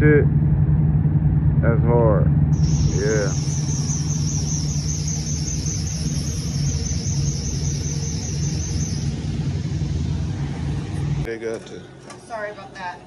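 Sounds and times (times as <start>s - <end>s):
truck engines idling: 2.3s - 12.5s
high pulsing chirp: 2.6s - 11.3s.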